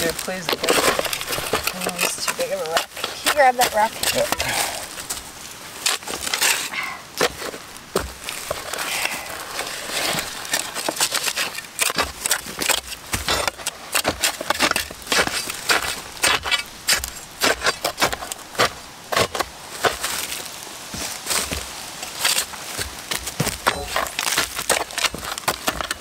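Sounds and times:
shovel scraping dirt and leaves: 0.0s - 26.0s.

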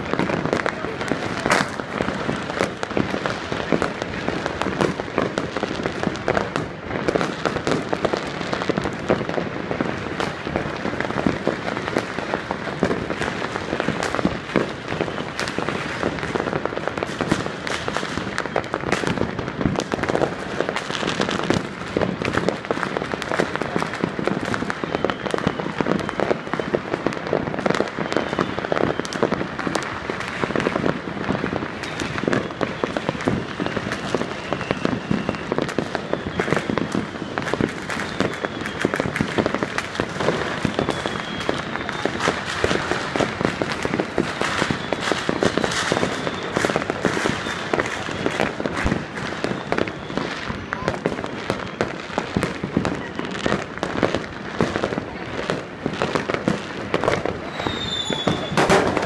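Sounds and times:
fireworks crackling and banging: 0.0s - 59.0s.

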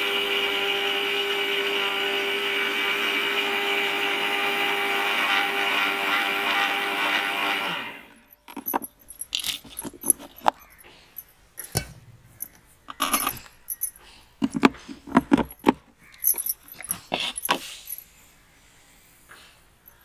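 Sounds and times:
mixer grinder motor: 0.0s - 8.2s
metallic clinks and taps: 8.3s - 18.0s.

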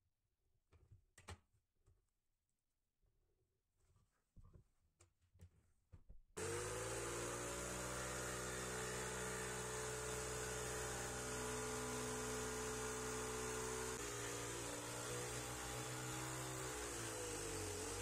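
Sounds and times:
electric jigsaw cutting wood: 6.4s - 18.0s.

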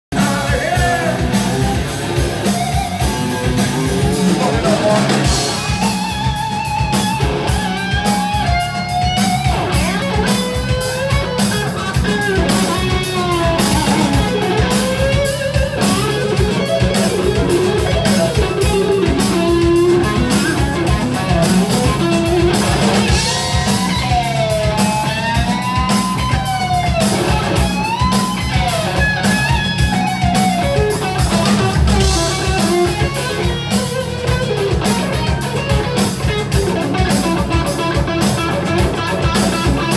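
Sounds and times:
live rock band: 0.1s - 39.9s
electric guitar lead solo: 0.5s - 39.9s.

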